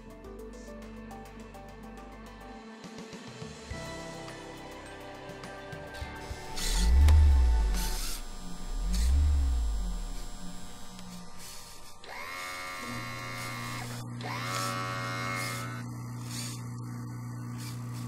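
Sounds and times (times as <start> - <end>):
rising electronic tones: 6.3 - 14.5
low electrical hum: 6.5 - 18.0.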